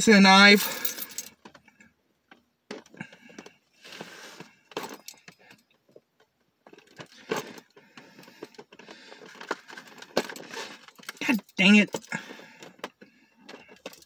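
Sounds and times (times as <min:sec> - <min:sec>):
keys jangling: 0:00.6 - 0:01.4, 0:09.4 - 0:12.2, 0:13.5 - 0:14.0.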